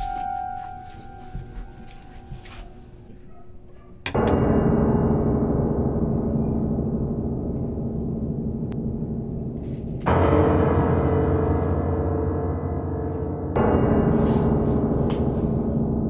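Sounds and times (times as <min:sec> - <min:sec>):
loud gong-like hit ringing: 0:04.1 - 0:16.0.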